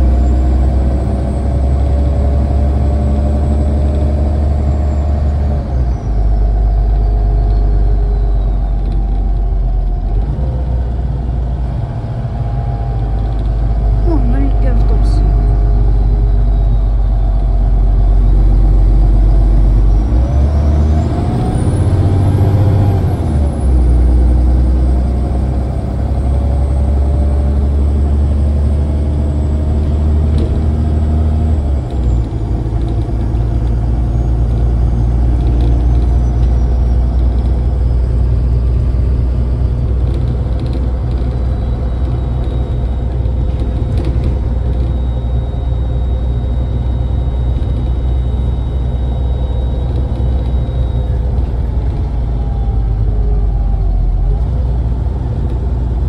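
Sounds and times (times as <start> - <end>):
bus engine from inside: 0.0 - 56.0
road noise: 0.0 - 56.0.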